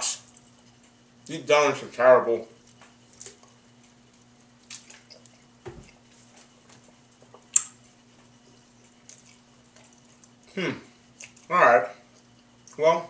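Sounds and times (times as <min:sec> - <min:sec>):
steady low hum: 0:00.0 - 0:13.0
wet mouth sounds and clicks: 0:07.5 - 0:07.8.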